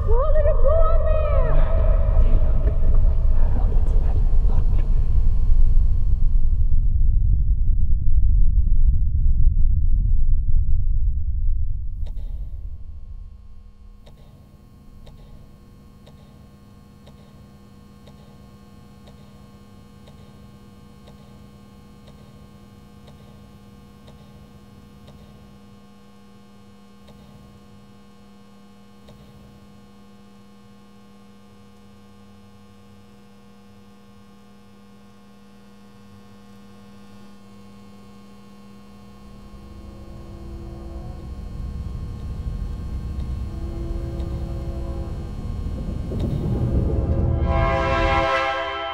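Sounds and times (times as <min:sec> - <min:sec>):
low rumble: 0:00.0 - 0:15.7, 0:38.8 - 0:48.9
electrical hum: 0:00.0 - 0:48.9.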